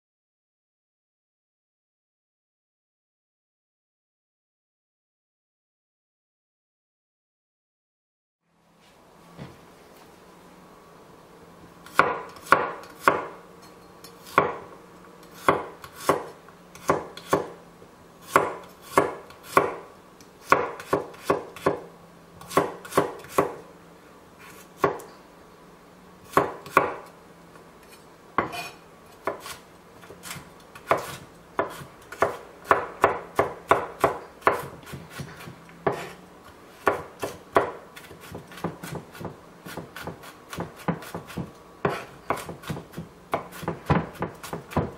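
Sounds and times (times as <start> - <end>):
knife chopping on wooden board: 11.9 - 13.3, 14.3 - 14.6, 15.4 - 17.6, 18.3 - 19.8, 20.4 - 21.8, 22.4 - 23.6, 24.8 - 25.1, 26.3 - 27.1, 28.4 - 36.2, 36.8 - 44.9.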